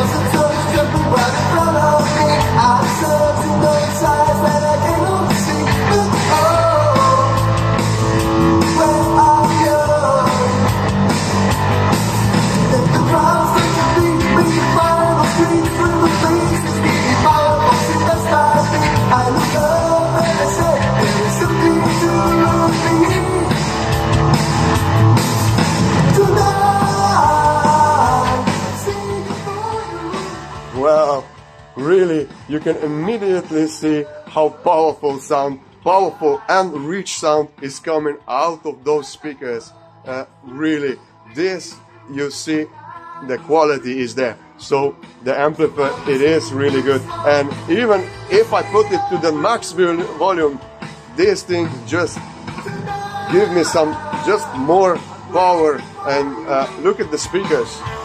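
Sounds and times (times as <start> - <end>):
rock song through speakers: 0.0 - 58.0.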